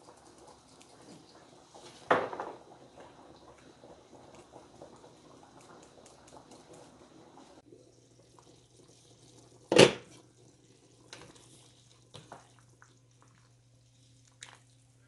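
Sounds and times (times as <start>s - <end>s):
wooden spoon stirring soup: 10.1s - 15.0s.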